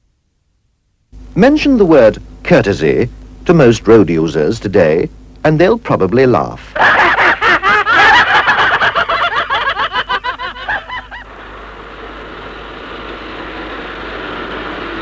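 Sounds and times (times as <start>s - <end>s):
cartoon voices laughing: 6.8s - 11.3s
passing traffic hum: 8.3s - 15.0s.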